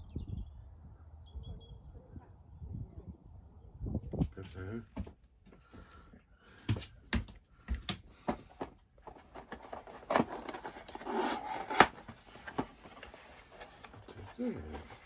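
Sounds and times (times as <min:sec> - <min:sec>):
cardboard scraping and rustling: 0:08.2 - 0:15.0.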